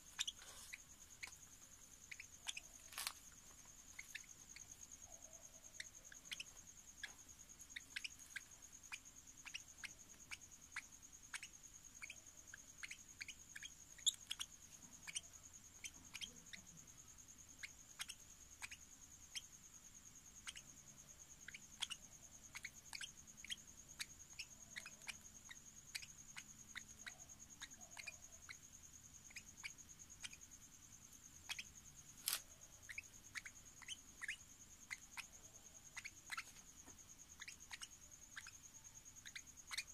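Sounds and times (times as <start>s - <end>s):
parrot chick squeaky chirps: 0.1s - 1.4s, 2.1s - 3.1s, 3.9s - 5.1s, 5.8s - 16.7s, 17.6s - 19.4s, 20.4s - 20.7s, 21.4s - 28.6s, 29.3s - 30.4s, 31.4s - 31.7s, 32.3s - 36.6s, 37.4s - 38.6s, 39.2s - 39.9s.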